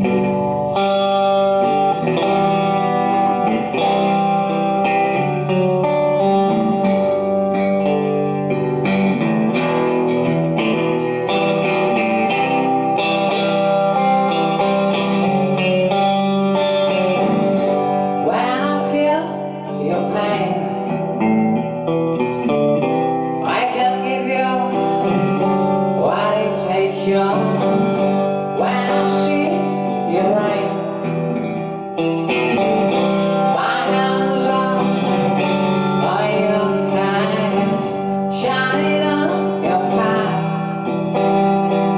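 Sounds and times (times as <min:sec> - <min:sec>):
electric bass: 0:00.0 - 0:18.2
distorted electric guitars: 0:00.0 - 0:41.9.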